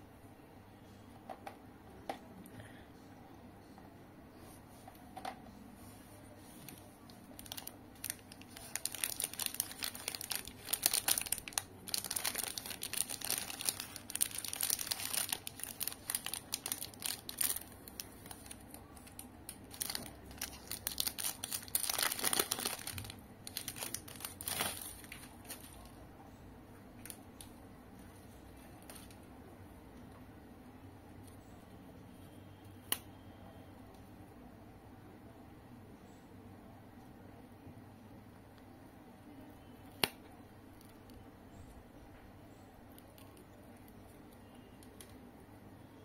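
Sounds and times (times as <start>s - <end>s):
plastic wrapper crinkling: 6.6s - 26.0s, 28.8s - 29.2s.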